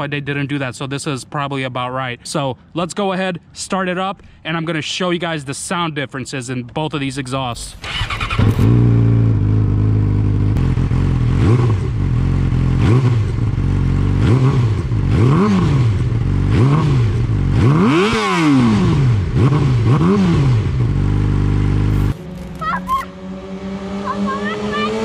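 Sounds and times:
motorcycle engine revving: 7.8 - 25.0.

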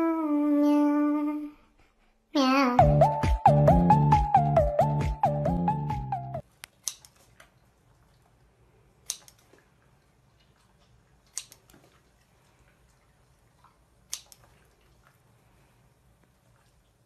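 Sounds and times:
upbeat music: 2.8 - 6.4.

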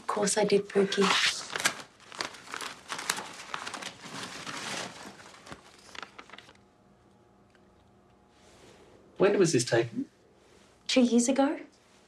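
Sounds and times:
paper rustling and crinkling: 1.0 - 6.6.

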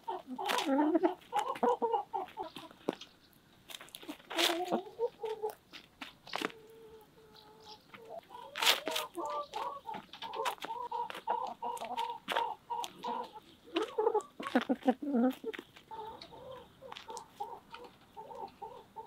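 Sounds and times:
hens clucking softly: 0.0 - 19.0
beaks tapping on crust: 8.6 - 16.3, 16.9 - 18.5.

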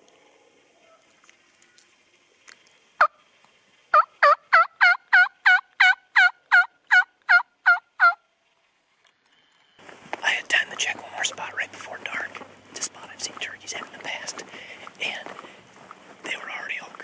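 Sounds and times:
turkey yelping: 3.9 - 8.2.

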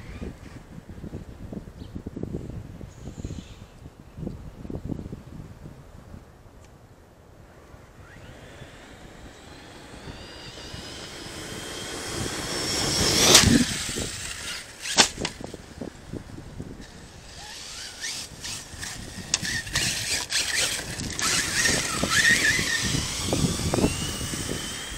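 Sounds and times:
electric motor whining: 7.6 - 24.9
sharp crack: 11.0 - 15.6.

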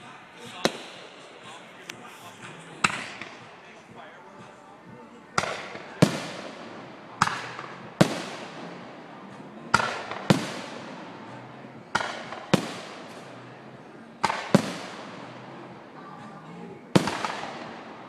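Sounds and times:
firework bangs: 0.5 - 3.8, 5.4 - 18.0.

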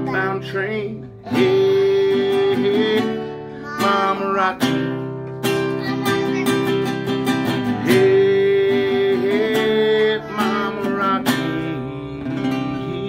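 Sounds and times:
person singing long note: 0.0 - 4.6, 7.8 - 13.0
acoustic guitar strumming: 0.0 - 13.0.

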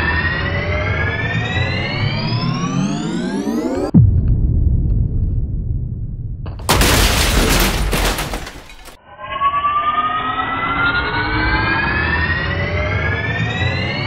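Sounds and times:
rising siren-like synth: 0.0 - 3.9, 9.0 - 14.0
deep bass boom and rumble: 4.0 - 7.8.

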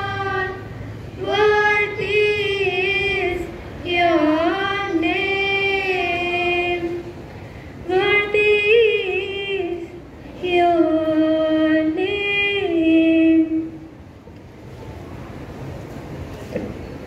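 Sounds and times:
woman singing unaccompanied: 0.0 - 7.1, 7.8 - 13.8.

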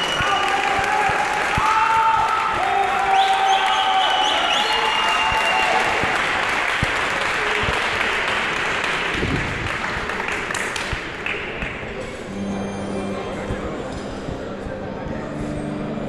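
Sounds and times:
crowd applauding and cheering: 0.0 - 12.3.

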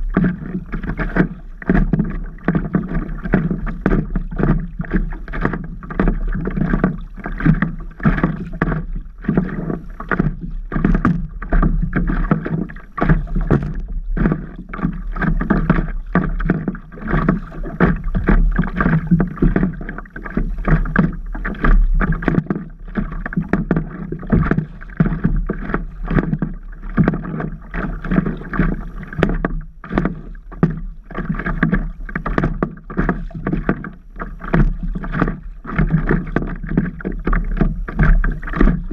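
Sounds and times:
water splashing against paddle board: 0.0 - 38.9.

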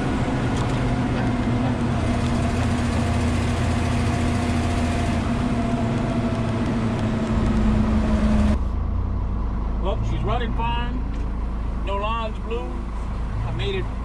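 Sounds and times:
diesel truck engine drone: 0.0 - 14.0
road rumble: 0.0 - 14.0.

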